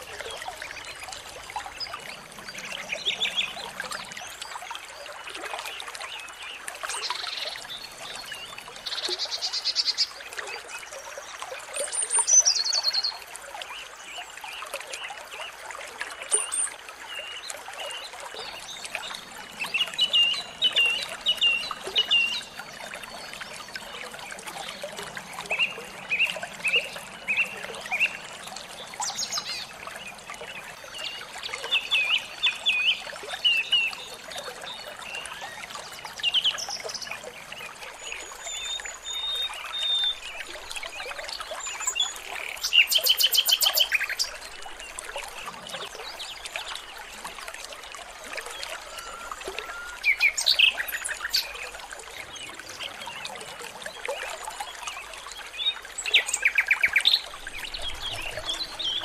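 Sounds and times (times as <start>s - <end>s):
water trickling: 0.0s - 59.0s
songbirds chirping: 16.4s - 59.0s.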